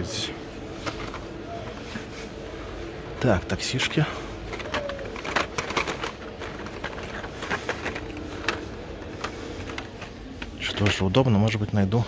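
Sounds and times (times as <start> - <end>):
faint steady hum: 0.0 - 12.0
blister packs clicking and crinkling: 3.8 - 11.6.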